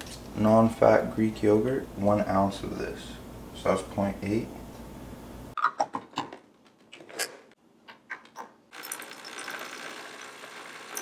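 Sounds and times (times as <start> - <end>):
coffee machine brewing: 8.8 - 11.0.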